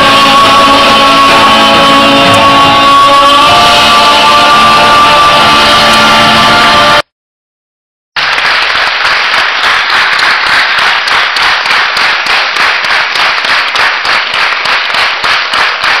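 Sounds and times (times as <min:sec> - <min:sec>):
audience applauding: 0:08.2 - 0:16.0.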